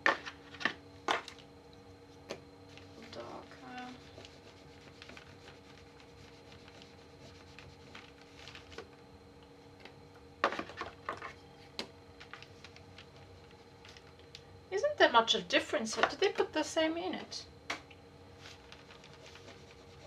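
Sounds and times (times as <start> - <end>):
low electrical hum: 0.0 - 20.0
crayon scratching on paper: 3.6 - 8.0, 19.2 - 20.0.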